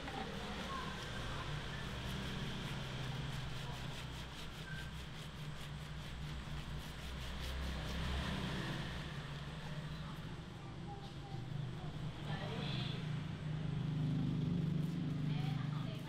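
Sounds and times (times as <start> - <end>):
hands scrubbing lathered hair: 0.1 - 9.1.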